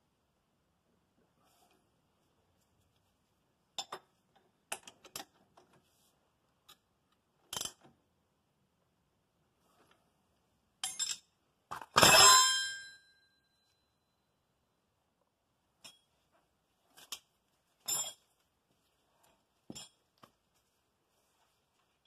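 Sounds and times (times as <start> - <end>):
metal tools clinking: 10.8 - 12.4, 17.8 - 18.3.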